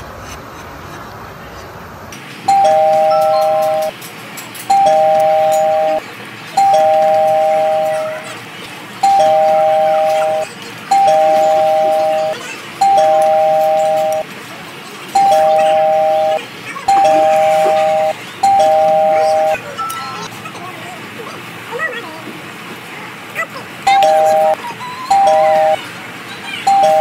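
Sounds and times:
electronic two-tone chime: 2.5s - 3.9s, 4.7s - 6.0s, 6.6s - 8.2s, 9.0s - 14.3s, 15.2s - 20.3s, 23.9s - 25.8s, 26.7s - 27.0s.

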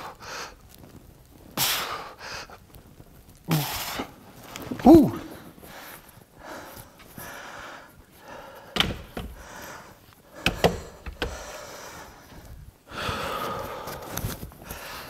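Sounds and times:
man breathing hard: 0.0s - 0.7s, 4.9s - 15.0s
loud thuds: 8.7s - 9.7s.

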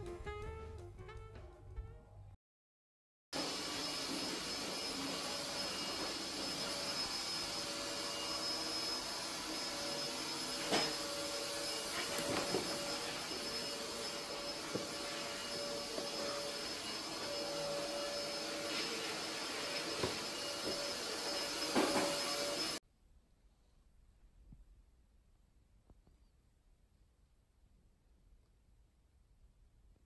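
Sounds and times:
electric motor whining: 3.4s - 22.8s.

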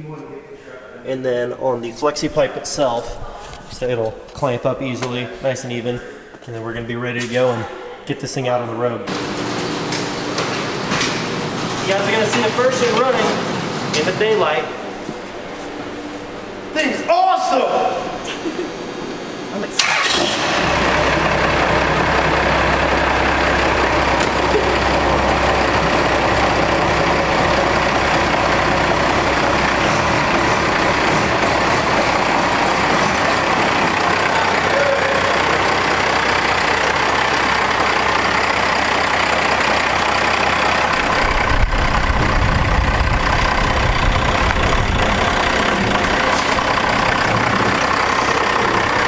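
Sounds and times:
diesel engine idling: 9.1s - 16.7s, 18.0s - 49.0s.

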